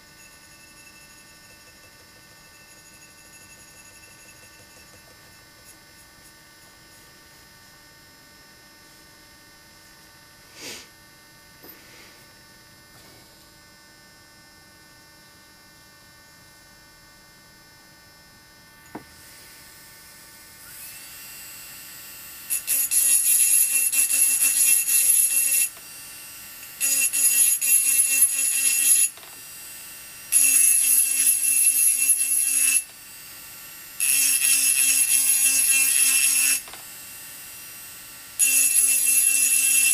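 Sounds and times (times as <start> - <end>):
rotary tool grinding glass: 0.0 - 6.0, 22.5 - 25.9, 26.6 - 29.4, 30.3 - 32.9, 34.0 - 36.8, 38.4 - 39.9
rotary tool motor running: 0.0 - 6.0, 22.5 - 29.6, 30.3 - 33.0, 34.0 - 36.9, 38.4 - 39.9.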